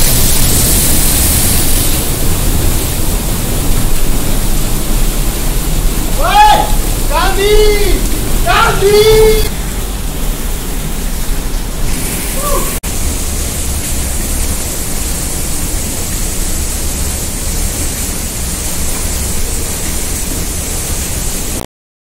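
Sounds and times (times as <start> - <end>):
water rushing over rocks: 0.0 - 21.6
faint voice calling: 6.2 - 9.5, 12.4 - 12.8.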